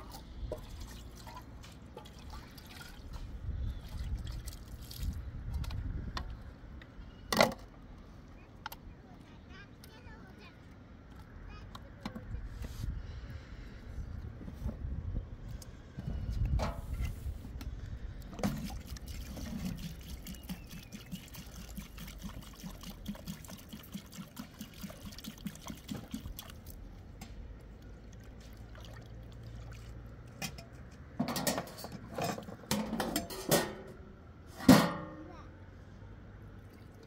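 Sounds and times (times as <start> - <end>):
water pouring and sloshing: 0.0 - 6.8, 15.5 - 35.1, 36.4 - 37.0.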